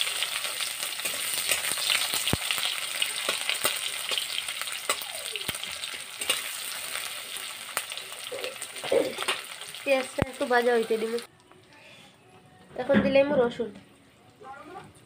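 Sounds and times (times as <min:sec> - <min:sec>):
onions sizzling in hot oil: 0:00.0 - 0:11.3.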